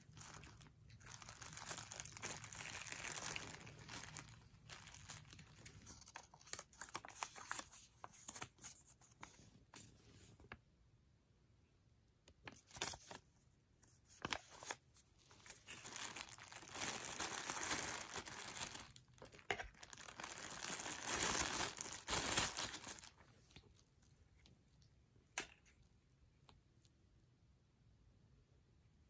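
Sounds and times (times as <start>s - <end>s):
plastic bag crinkling: 0.0s - 8.4s, 14.2s - 23.9s.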